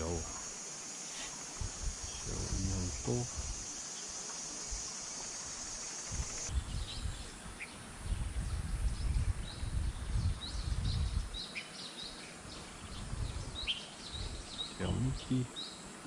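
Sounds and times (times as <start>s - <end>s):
high insect buzz: 0.0s - 8.1s
wind buffeting microphone: 1.5s - 3.8s, 6.0s - 11.4s, 12.5s - 15.4s.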